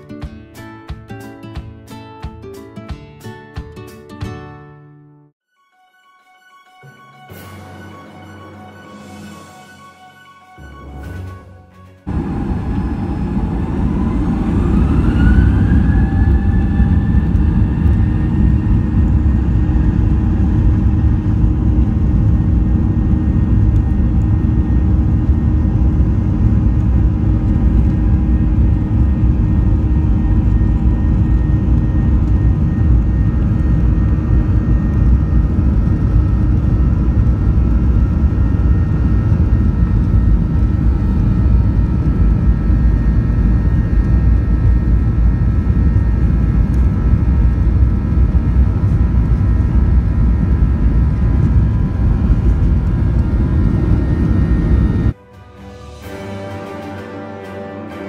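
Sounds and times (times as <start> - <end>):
loud engine rumble: 12.1 - 55.2
jet engine whine: 12.1 - 56.2.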